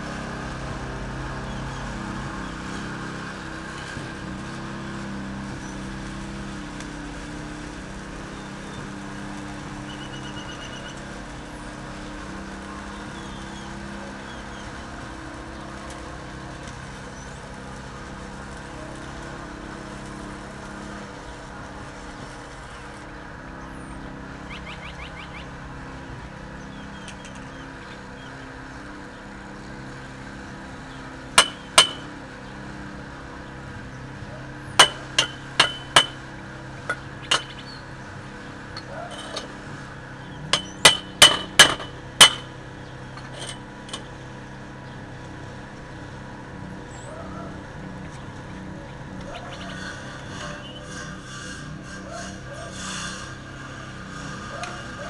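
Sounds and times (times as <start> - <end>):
chipping hammer striking metal: 31.4 - 32.1, 34.7 - 36.3, 36.9 - 37.8, 40.5 - 42.6.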